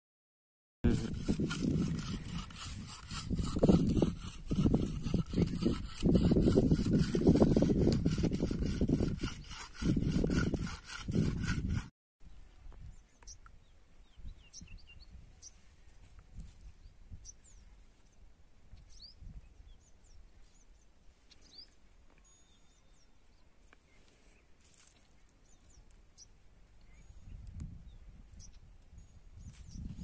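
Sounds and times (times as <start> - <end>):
faint bird chirps: 16.8 - 30.0.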